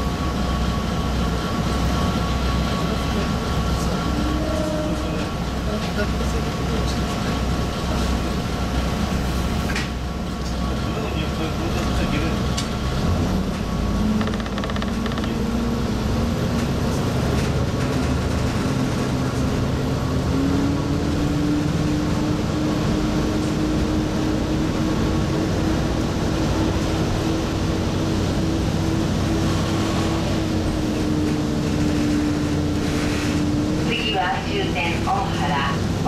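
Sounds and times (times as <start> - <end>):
diesel railcar engine drone: 0.0 - 36.0
wheels rumbling on rails: 0.0 - 36.0.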